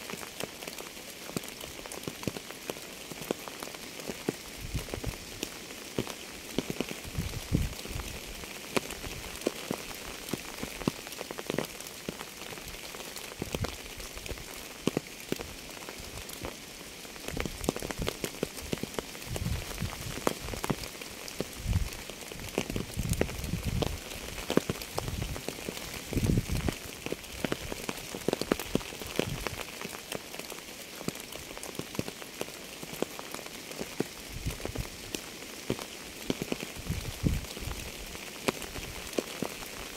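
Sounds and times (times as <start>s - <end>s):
raindrops tapping close by: 0.0s - 39.9s
steady rain hiss: 0.0s - 39.9s.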